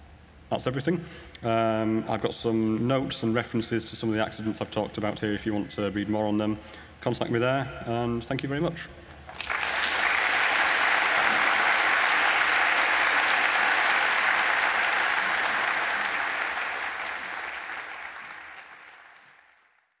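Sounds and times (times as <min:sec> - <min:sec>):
audience applauding: 0:09.3 - 0:19.9.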